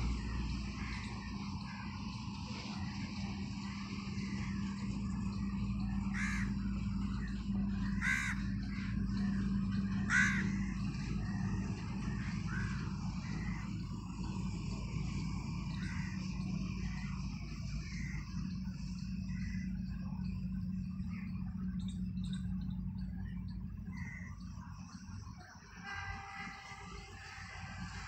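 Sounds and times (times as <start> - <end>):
steady low hum: 0.0 - 28.0
crow cawing: 5.8 - 13.7, 15.7 - 16.3, 23.9 - 24.4.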